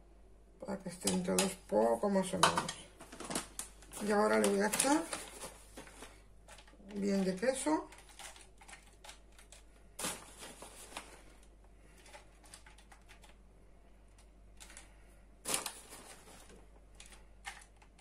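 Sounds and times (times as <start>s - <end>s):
crackly rustles of foil: 3.0s - 13.4s, 14.2s - 18.0s.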